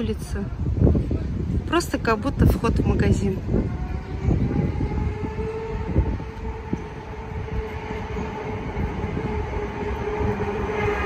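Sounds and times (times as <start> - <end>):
tram whine: 0.0 - 11.0
wheels rumbling on rails: 0.0 - 11.0.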